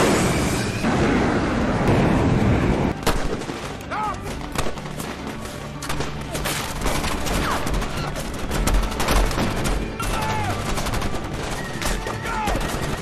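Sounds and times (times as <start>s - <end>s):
orchestral music: 1.8s - 13.0s
gunshots: 3.0s - 13.0s.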